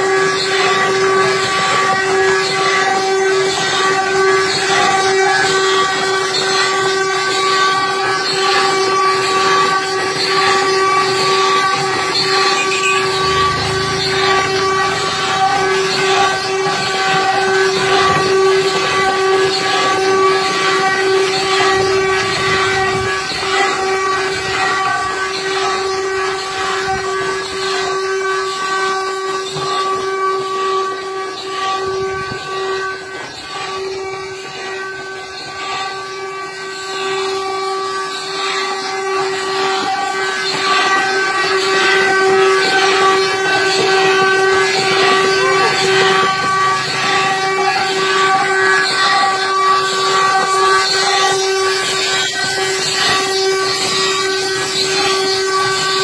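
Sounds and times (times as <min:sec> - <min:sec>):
wooden cart axle whining: 0:00.0 - 0:56.0
wheels rumbling on dirt road: 0:10.6 - 0:20.1.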